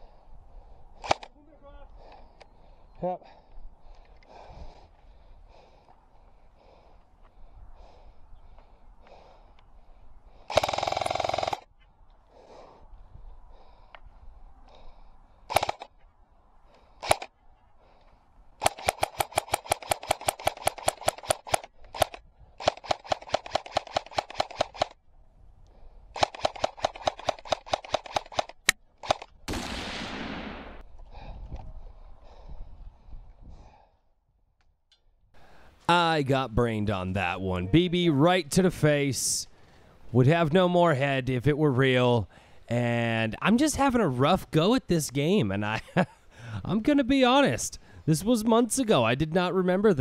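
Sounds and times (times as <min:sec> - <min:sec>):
airsoft guns firing: 0:10.5 - 0:11.7, 0:15.5 - 0:15.9, 0:18.6 - 0:25.0, 0:26.2 - 0:30.8.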